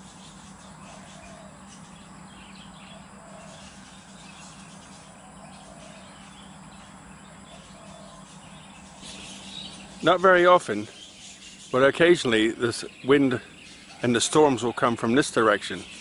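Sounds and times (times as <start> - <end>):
birds chirping: 0.0 - 16.0
insects trilling: 0.0 - 16.0
steady low hum: 0.0 - 16.0.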